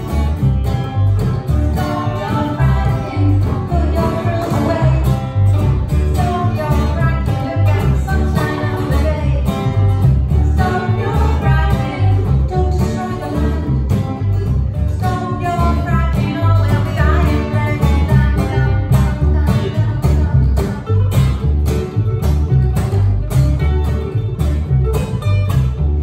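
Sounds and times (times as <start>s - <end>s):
double bass plucking low notes: 0.0s - 26.0s
small plucked string instrument: 0.0s - 26.0s
strummed acoustic guitar: 0.0s - 26.0s
woman singing: 1.7s - 21.4s.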